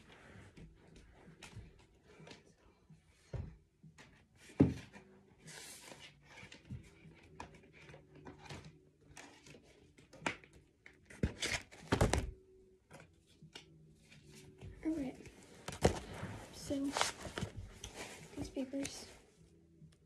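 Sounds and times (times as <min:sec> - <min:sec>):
rustling: 0:15.2 - 0:19.3.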